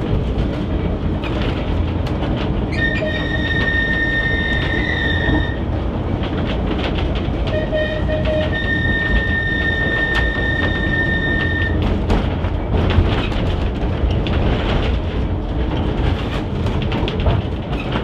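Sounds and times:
rail joint clicks: 0.0 - 18.0
tram rumbling over rails: 0.0 - 18.0
high wheel squeal: 2.7 - 5.6, 7.6 - 11.8.

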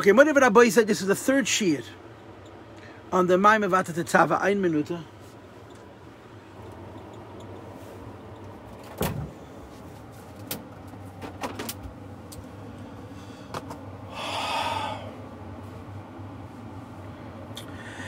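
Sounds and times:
low room hum: 0.0 - 18.0
rustling near microphone: 6.7 - 11.9.

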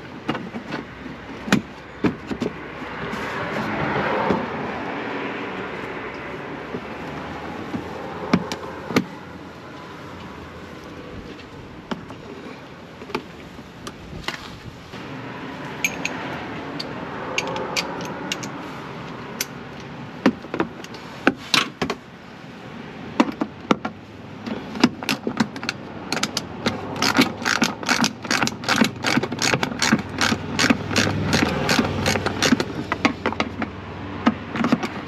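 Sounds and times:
ratchet wrench clicking: 26.1 - 32.8.

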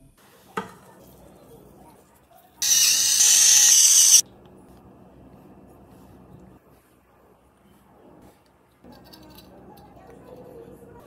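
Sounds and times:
electric pepper mill grinding: 2.6 - 4.2.

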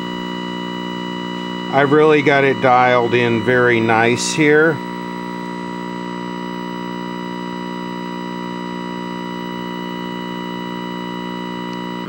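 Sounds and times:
buzzy electronic tone from tv: 0.0 - 12.0.

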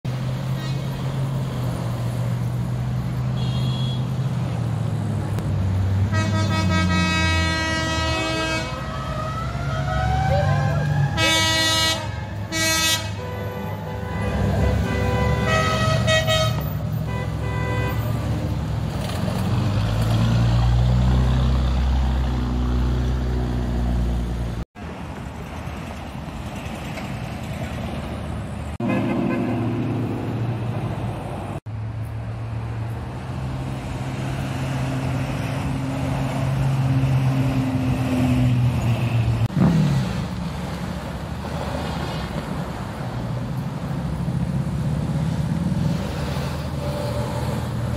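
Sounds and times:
cars driving past: 0.1 - 47.9
car horns honking: 3.3 - 4.2, 6.1 - 9.0, 11.1 - 18.3, 28.8 - 29.8.

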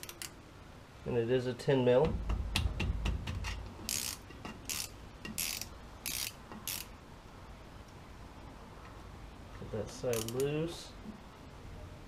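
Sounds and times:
socket ratchet clicking: 0.0 - 0.4, 3.9 - 6.9, 10.1 - 10.5.

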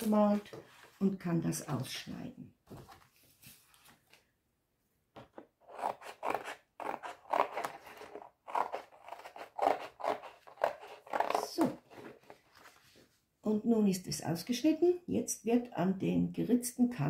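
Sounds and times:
scissors snipping paper: 5.7 - 12.2.

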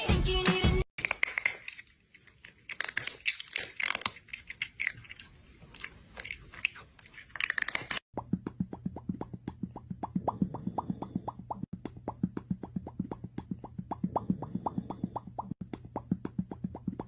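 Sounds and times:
cat chewing crunchy food: 1.2 - 8.0.

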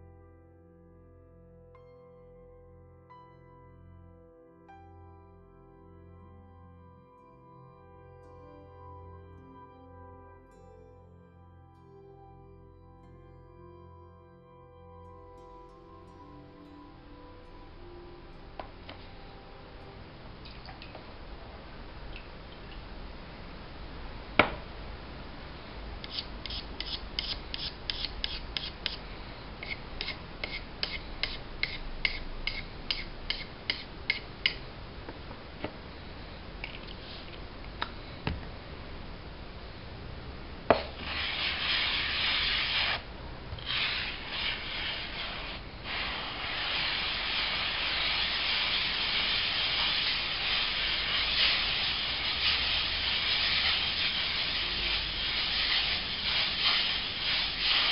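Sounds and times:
knock: 24.4 - 24.6.

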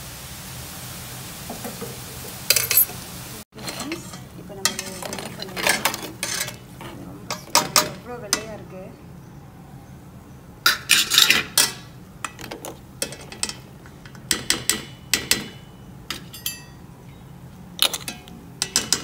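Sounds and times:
metal tongs clinking on metal: 2.5 - 2.9, 3.6 - 6.6, 7.3 - 8.6, 10.7 - 16.8, 17.8 - 19.0.

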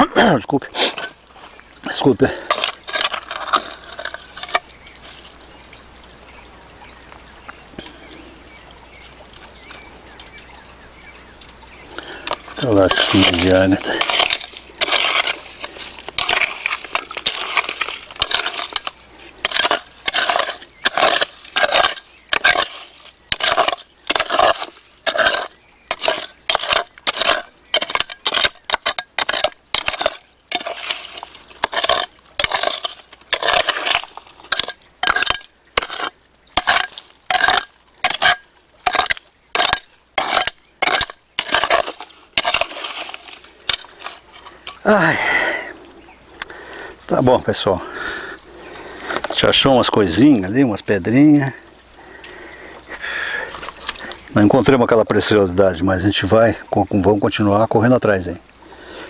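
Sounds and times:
hand hoe scraping stony soil: 0.0 - 5.4, 12.0 - 45.2, 53.5 - 54.8.

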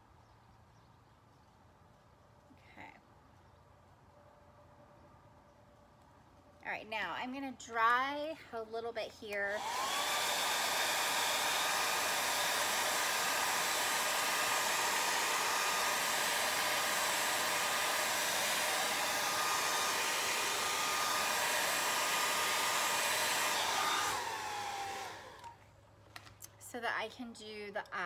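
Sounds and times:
hair dryer blowing: 9.4 - 25.6
motor spinning down: 9.6 - 25.6.

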